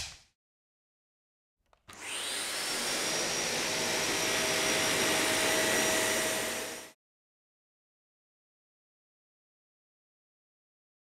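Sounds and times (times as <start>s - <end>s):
vacuum cleaner running with whine: 1.9s - 7.0s.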